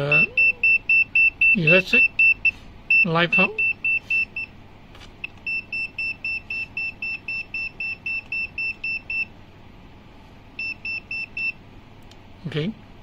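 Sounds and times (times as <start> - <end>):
rapid high-pitched beeps: 0.0 - 4.5, 5.5 - 9.3.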